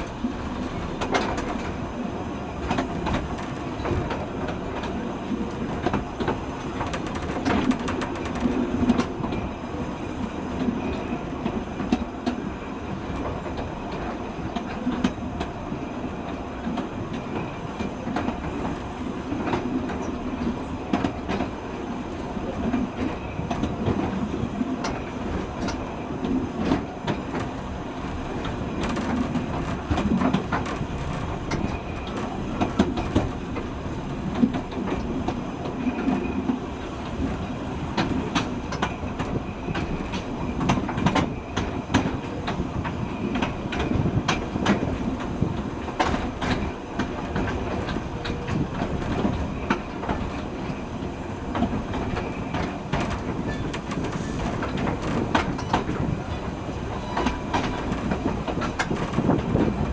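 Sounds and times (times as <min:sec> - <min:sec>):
train rumbling on track: 0:00.0 - 0:59.9
wheels clicking over rail joints: 0:02.6 - 0:09.5, 0:22.5 - 0:59.9.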